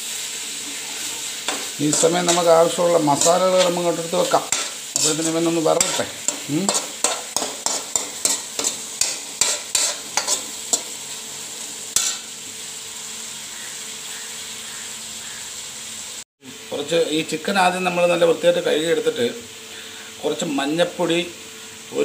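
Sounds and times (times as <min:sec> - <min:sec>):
frying sizzle: 0:00.0 - 0:22.0
metal spoon scraping a pan: 0:01.0 - 0:11.0, 0:11.9 - 0:12.3.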